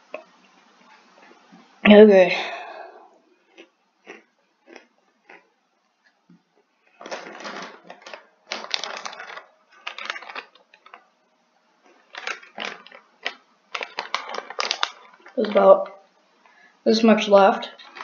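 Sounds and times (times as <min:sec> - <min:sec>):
chip bag crinkling: 0:03.5 - 0:05.4, 0:07.0 - 0:11.1, 0:11.8 - 0:16.0, 0:17.6 - 0:18.0.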